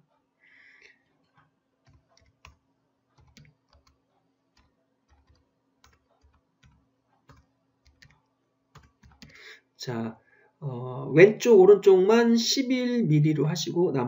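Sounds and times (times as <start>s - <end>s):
keyboard and mouse clicks: 1.2s - 2.6s, 3.2s - 9.4s.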